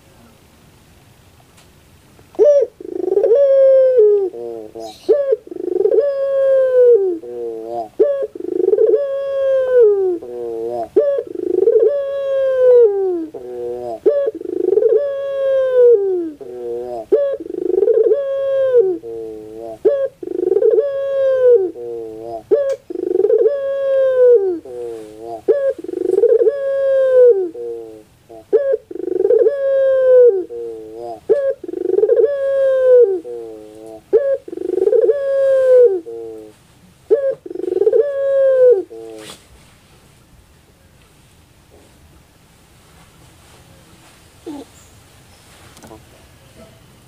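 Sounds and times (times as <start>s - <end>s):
turtle dove cooing: 2.4s - 39.4s, 44.4s - 44.9s.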